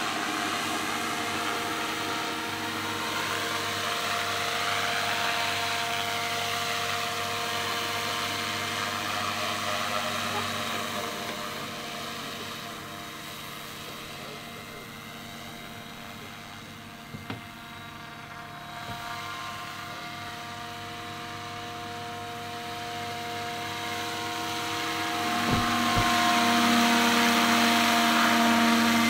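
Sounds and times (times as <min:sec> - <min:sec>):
model helicopter rotor whine: 0:00.0 - 0:29.0
brief knocks: 0:25.3 - 0:26.4.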